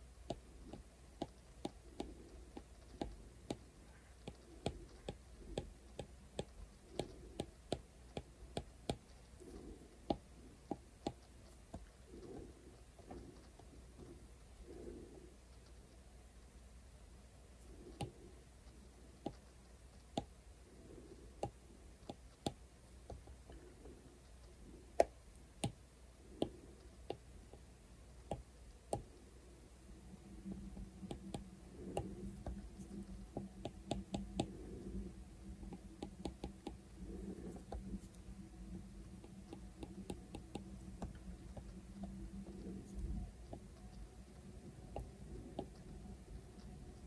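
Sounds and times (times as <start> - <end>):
low steady hum: 0.0 - 47.0.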